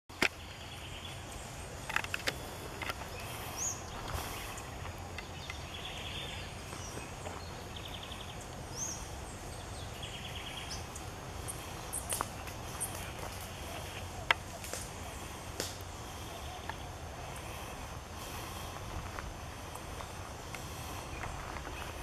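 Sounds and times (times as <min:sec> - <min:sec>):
birds chirping: 0:00.1 - 0:22.0
low steady rumble: 0:00.4 - 0:22.0
sharp clicks or snaps: 0:15.6 - 0:15.8.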